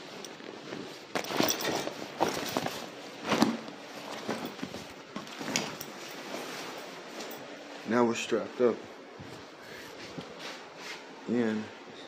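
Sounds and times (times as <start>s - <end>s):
gear being handled: 0.0s - 7.5s.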